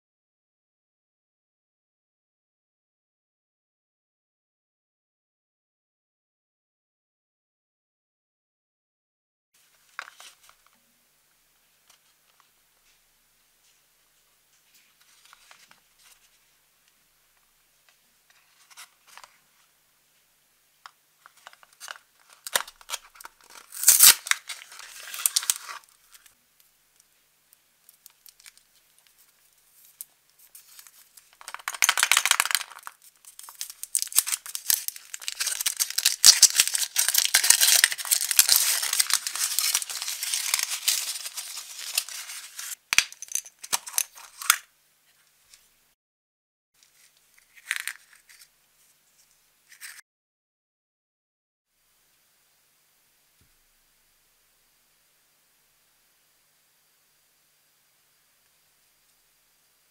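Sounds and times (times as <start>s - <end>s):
foil wrapper crinkling: 21.4s - 26.4s, 29.7s - 44.6s.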